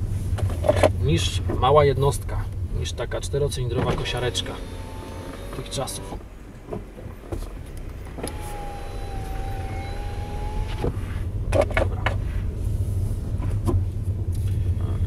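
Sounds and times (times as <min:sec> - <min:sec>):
car engine humming: 0:00.0 - 0:15.0
small electric motor whining: 0:04.2 - 0:06.2, 0:08.1 - 0:11.1.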